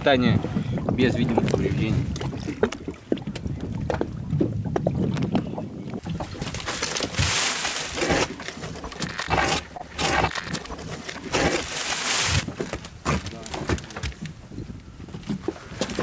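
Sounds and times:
fishing net and rope rustling: 5.9s - 16.0s.

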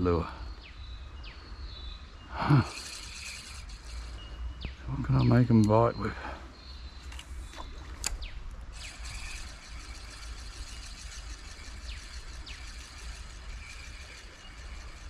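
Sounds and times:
fishing reel ticking whir: 2.5s - 4.5s, 7.9s - 15.0s
low steady rumble: 6.6s - 15.0s.

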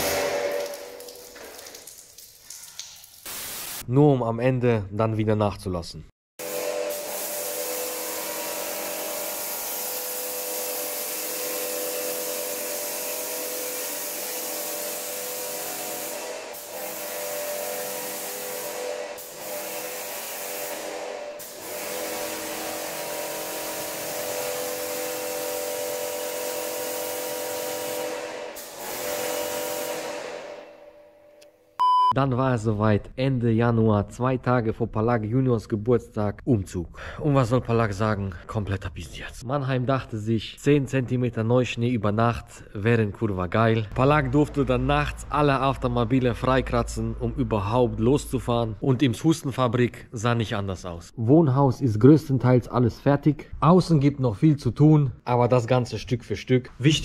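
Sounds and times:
water jet hissing: 0.0s - 3.8s, 6.9s - 30.3s
pressure washer motor hum: 6.4s - 30.2s.

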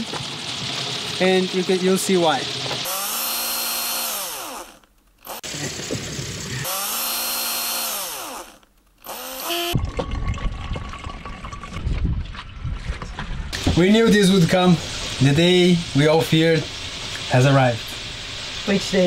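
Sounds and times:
power drill boring: 2.7s - 9.8s
coconut water pouring into a jug: 9.8s - 12.4s.

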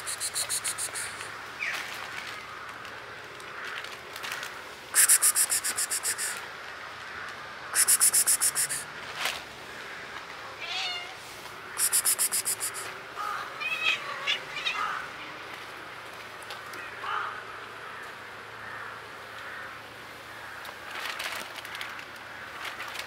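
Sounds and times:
high-pitched cat chattering: 0.0s - 1.3s, 5.0s - 6.4s, 7.8s - 8.9s, 11.8s - 12.9s
cats meowing: 10.6s - 11.2s, 11.8s - 15.1s.

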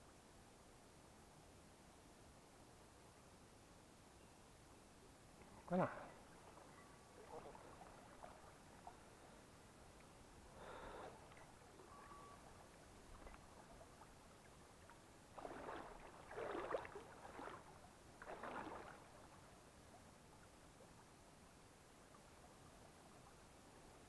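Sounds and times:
water sloshing from wading: 5.4s - 20.9s
stream rushing: 10.4s - 19.4s.

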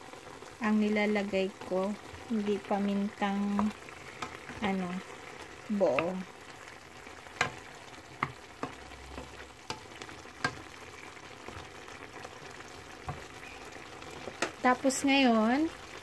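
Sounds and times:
meat sizzling: 0.0s - 16.0s
spatula knocking against pan: 7.4s - 7.6s, 8.2s - 10.7s.

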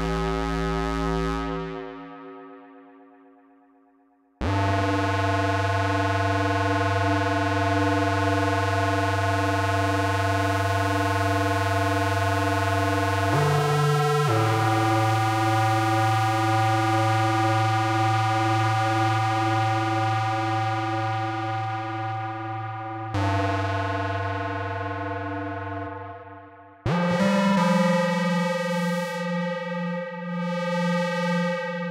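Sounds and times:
buzzy synthesizer notes with echo: 0.0s - 3.6s, 4.4s - 31.9s.

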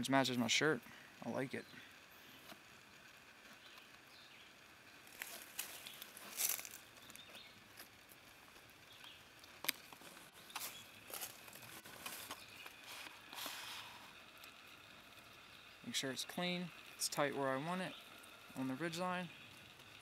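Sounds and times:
cord rustling and scraping: 5.1s - 7.9s, 9.6s - 14.2s.

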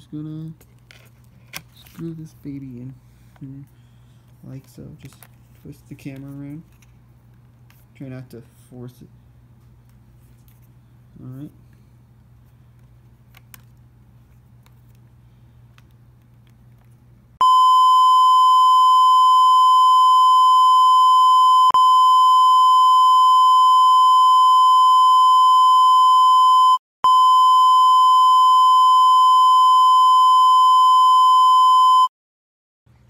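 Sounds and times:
steady high test tone beep: 17.4s - 32.1s.

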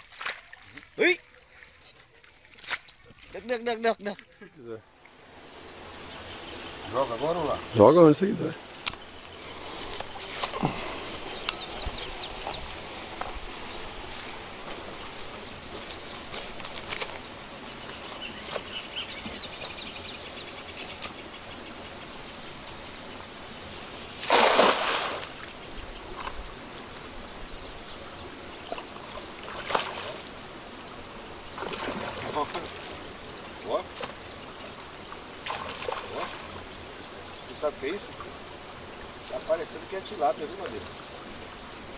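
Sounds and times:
insect chorus: 2.6s - 41.9s
loud water splash: 24.2s - 25.3s.

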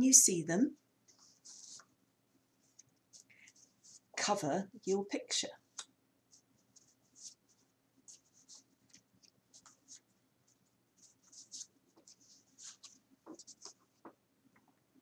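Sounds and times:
paper rustling and scraping: 1.1s - 1.9s, 11.0s - 14.2s.

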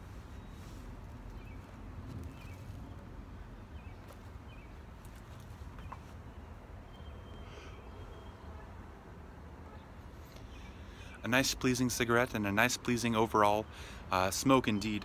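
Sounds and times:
faint bird chirps: 5.8s - 8.7s.

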